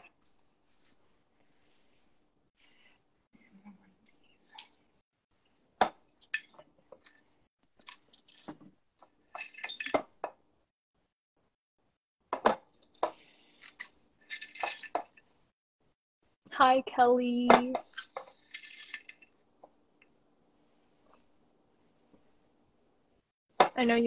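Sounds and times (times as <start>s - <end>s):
spoon rattling: 13.8s - 15.0s, 17.9s - 19.3s.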